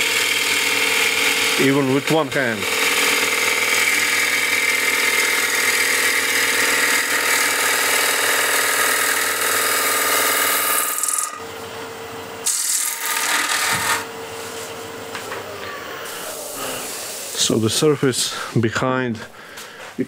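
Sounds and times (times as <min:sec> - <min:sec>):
gouge cutting spinning wood: 0:00.0 - 0:11.4, 0:12.4 - 0:14.1
lathe humming: 0:00.0 - 0:15.2.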